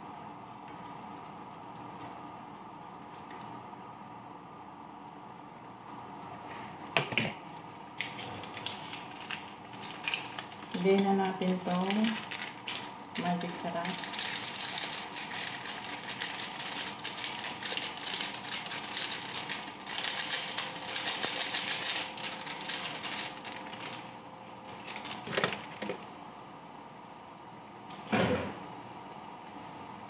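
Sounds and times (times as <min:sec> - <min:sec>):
plastic sachet rustling: 0:08.0 - 0:26.1.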